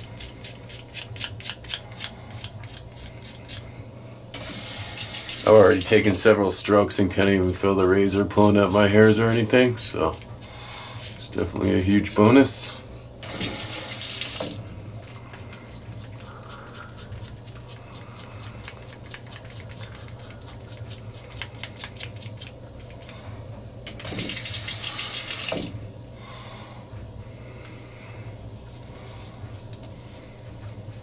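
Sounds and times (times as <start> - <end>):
water tap running: 4.4 - 6.2, 13.2 - 14.7, 23.9 - 25.8
razor scraping stubble: 7.6 - 10.2.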